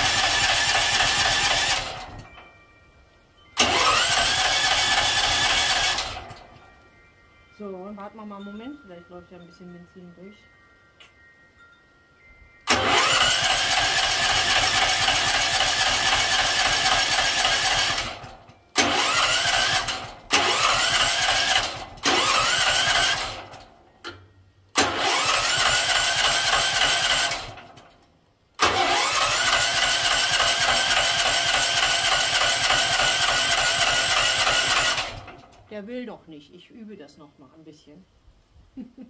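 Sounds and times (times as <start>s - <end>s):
generator electric starter cranking: 0.0s - 2.6s, 3.6s - 6.8s, 12.6s - 28.0s, 28.6s - 35.7s.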